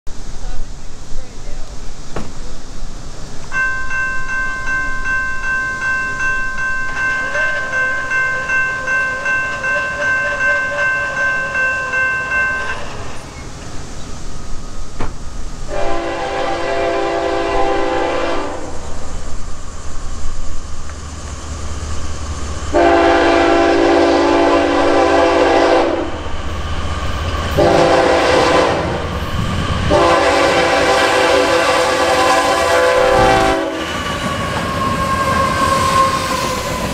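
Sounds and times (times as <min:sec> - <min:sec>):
freight train rumble: 0:00.1 - 0:36.9
crossing bell ringing: 0:03.5 - 0:14.7
locomotive horn blasts: 0:15.7 - 0:18.8, 0:22.7 - 0:26.2, 0:27.6 - 0:29.0, 0:29.8 - 0:36.6.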